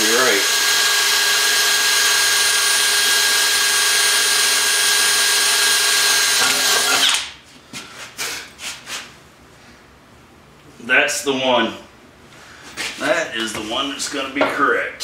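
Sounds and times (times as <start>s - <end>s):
cordless drill boring into metal: 0.0s - 7.1s.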